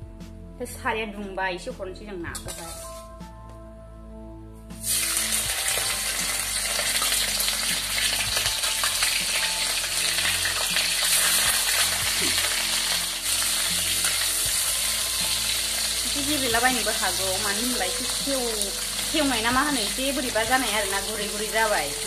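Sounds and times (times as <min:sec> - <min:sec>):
fish sizzling in hot oil: 0:04.8 - 0:22.0.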